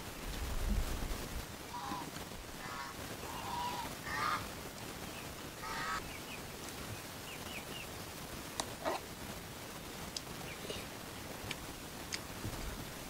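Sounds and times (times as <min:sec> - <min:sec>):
farmyard fowl calling: 0:01.7 - 0:04.5, 0:05.6 - 0:06.2.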